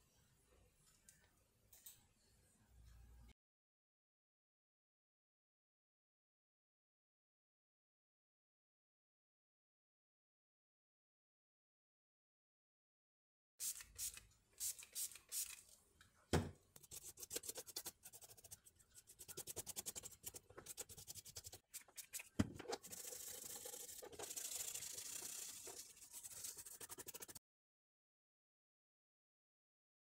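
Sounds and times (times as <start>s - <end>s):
toothbrush scrubbing circuit board: 16.8s - 27.4s.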